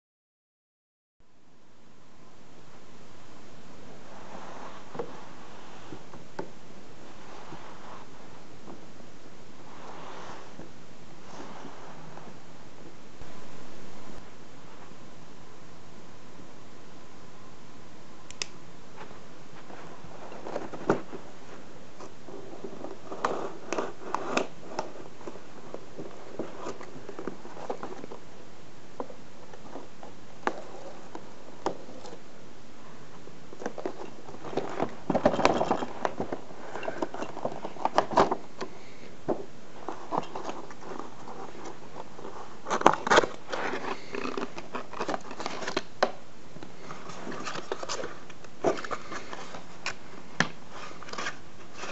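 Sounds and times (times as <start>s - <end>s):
cardboard scraping: 4.0s - 6.3s, 7.0s - 8.5s, 9.6s - 12.4s, 19.0s - 28.2s, 33.6s - 39.0s, 39.7s - 46.0s, 46.8s - 50.0s, 50.6s - 51.9s
clicks: 18.3s - 18.6s
plastic crackling and rustling: 39.3s - 51.9s.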